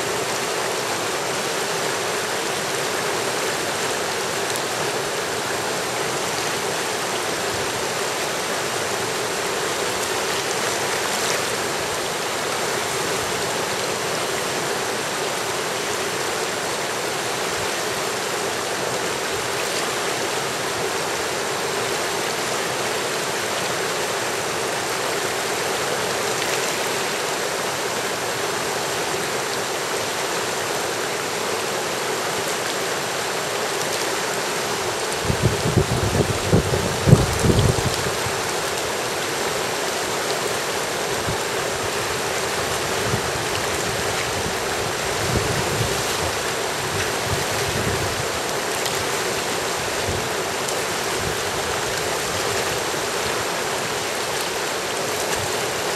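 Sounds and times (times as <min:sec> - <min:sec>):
river water rushing over rapids: 0:00.0 - 0:55.9.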